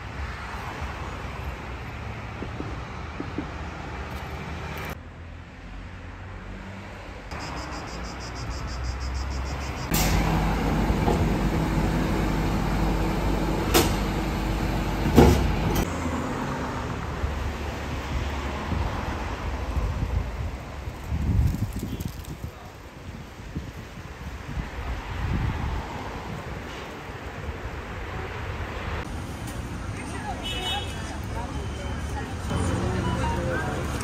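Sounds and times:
road noise: 0:00.0 - 0:34.0
bus engine hum: 0:07.4 - 0:18.2, 0:28.6 - 0:34.0.

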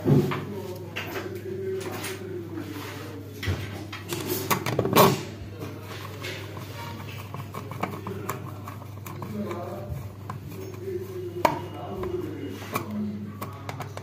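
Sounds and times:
plastic clicks and knocks: 0:11.4 - 0:14.0.

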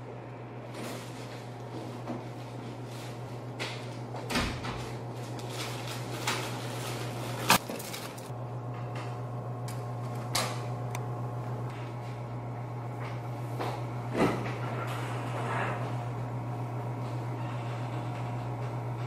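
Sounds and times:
plastic bag handled: 0:04.9 - 0:08.3.

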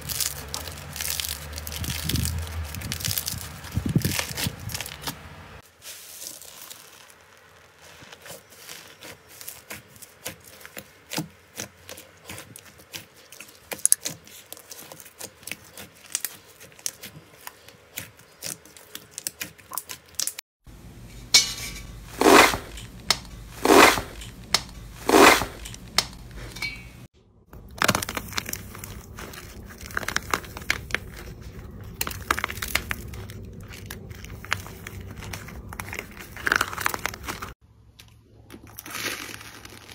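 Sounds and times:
foam beads crunching: 0:00.0 - 0:19.8, 0:21.3 - 0:26.6, 0:27.6 - 0:37.6, 0:38.5 - 0:39.9
slime squelching: 0:00.0 - 0:20.4, 0:21.9 - 0:26.6, 0:27.5 - 0:39.9
dried clay crackling: 0:00.0 - 0:39.9.

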